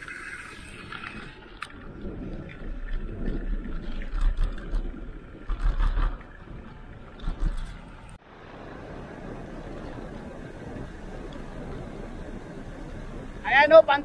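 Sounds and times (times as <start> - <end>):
wind buffeting microphone: 0.4 - 14.0
road noise: 5.2 - 14.0.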